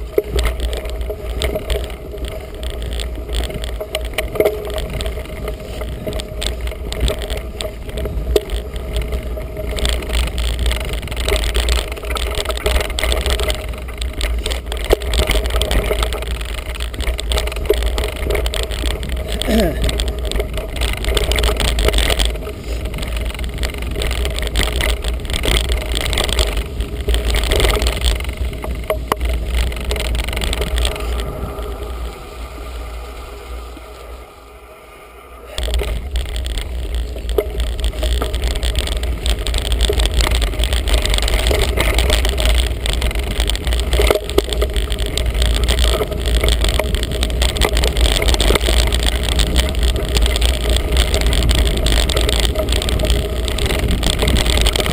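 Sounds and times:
bike tyre and frame rattle: 0:00.0 - 0:54.9
wind buffeting microphone: 0:00.0 - 0:54.9.

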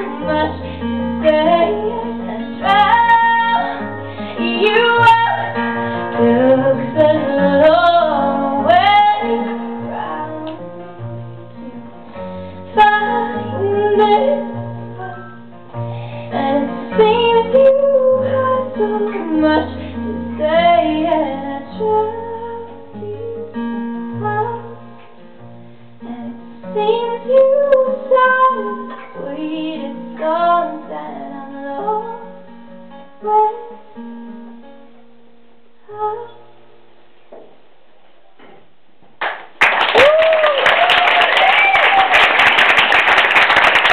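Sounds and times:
woman singing wordless melody: 0:00.0 - 0:10.9, 0:12.6 - 0:15.4, 0:16.3 - 0:25.0, 0:26.0 - 0:34.5, 0:35.8 - 0:36.7.

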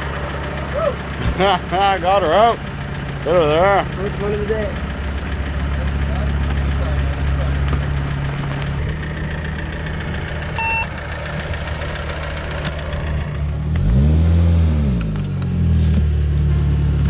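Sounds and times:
engine revving: 0:00.0 - 0:17.0
vehicle engine idling: 0:00.0 - 0:17.0
electronic beep: 0:10.6 - 0:10.9.

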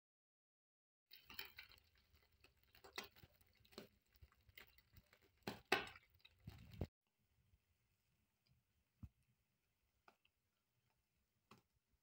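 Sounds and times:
ham frying in crackling oil: 0:01.1 - 0:06.9.

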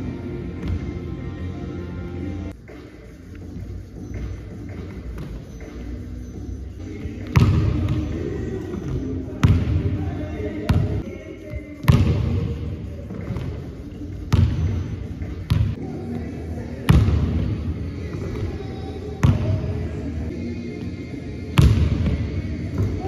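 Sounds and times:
basketball bouncing on gym floor: 0:00.6 - 0:01.0, 0:07.1 - 0:11.0, 0:11.8 - 0:15.8, 0:16.9 - 0:18.6, 0:19.2 - 0:19.8, 0:21.5 - 0:23.0.

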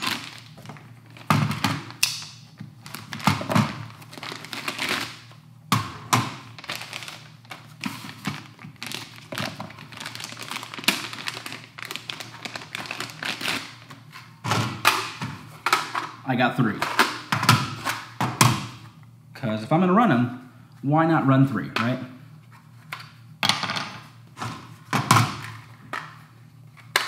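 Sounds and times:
plastic crinkling: 0:00.0 - 0:02.0, 0:02.6 - 0:05.4, 0:06.4 - 0:14.1.

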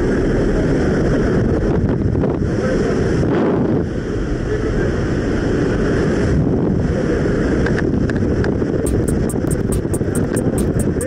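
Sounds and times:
rapid high-pitched ticking: 0:08.9 - 0:11.0.

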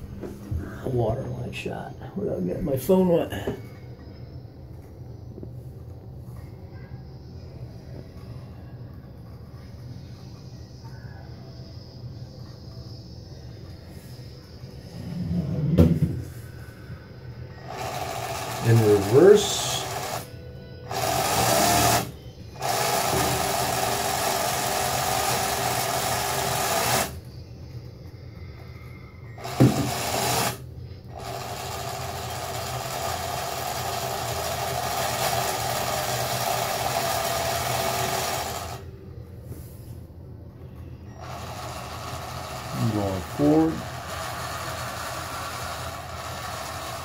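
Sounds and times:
small electric motors whining: 0:17.5 - 0:38.9, 0:41.0 - 0:47.0.

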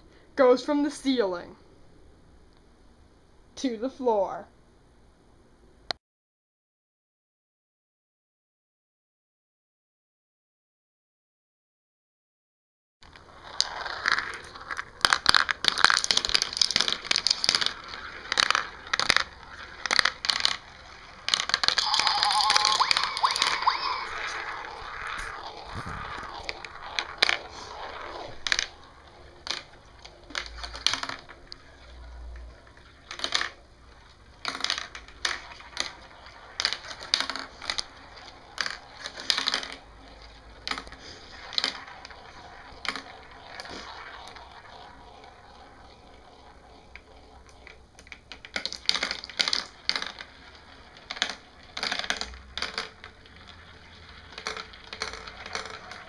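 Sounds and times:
marbles clattering down track: 0:13.0 - 0:56.0.

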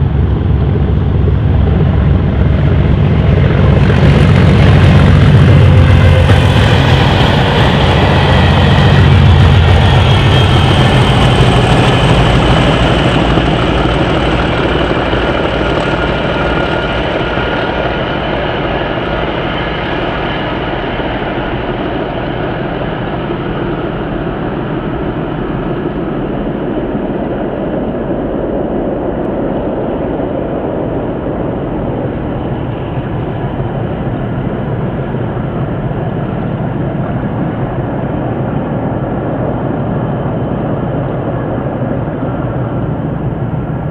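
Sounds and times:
train wheels running: 0:00.0 - 0:23.1
diesel locomotive engine rumble: 0:00.0 - 0:43.9.

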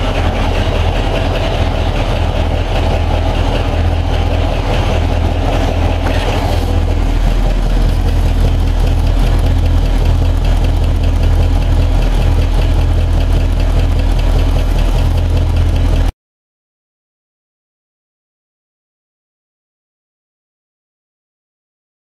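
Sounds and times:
car engine idling: 0:00.0 - 0:16.1.

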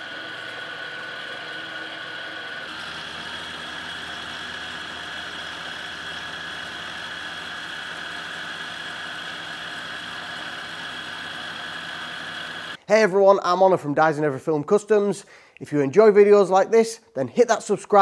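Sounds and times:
milling machine whine: 0:00.0 - 0:12.8.

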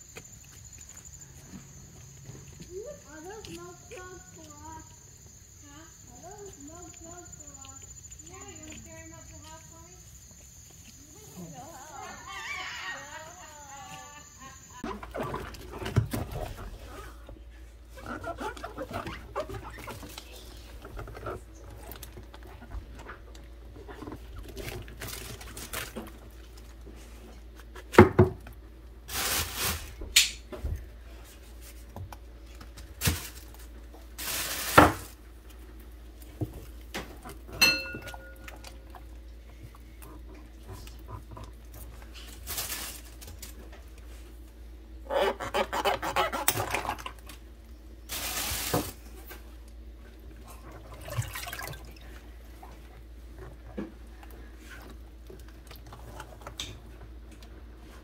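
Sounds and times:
knocks against basin: 0:37.6 - 0:38.4
short ringing ping: 0:37.6 - 0:38.4
water splashing in basin: 0:50.4 - 0:52.7.

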